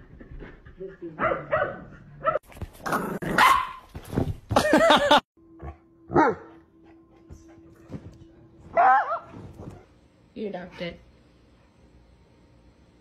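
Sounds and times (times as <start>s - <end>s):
dog barking loudly: 1.2s - 2.4s, 3.3s - 3.8s.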